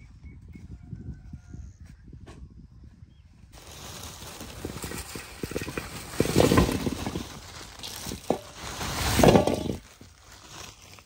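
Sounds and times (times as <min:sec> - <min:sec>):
potatoes clattering into metal bowl: 0:04.4 - 0:10.0.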